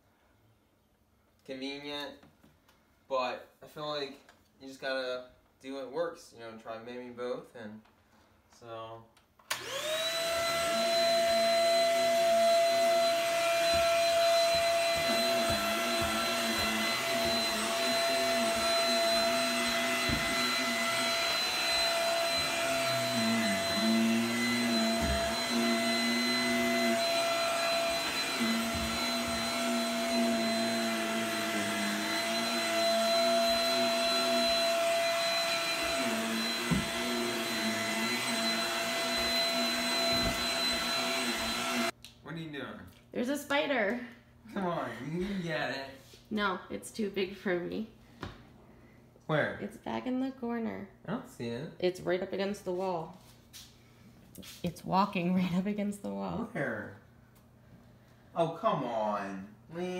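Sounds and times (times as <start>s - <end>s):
vacuum cleaner running: 9.5s - 42.0s, 58.4s - 59.9s.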